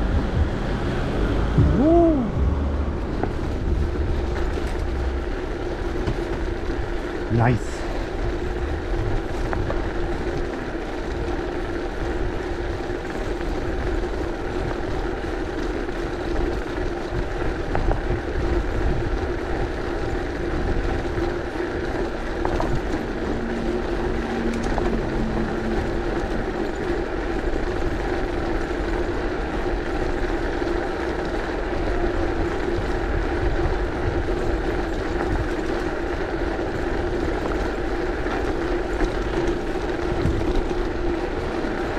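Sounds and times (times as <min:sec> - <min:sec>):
low hum: 0:00.0 - 0:07.3, 0:20.7 - 0:29.8
bicycle tyres on cobblestones: 0:00.0 - 0:41.9.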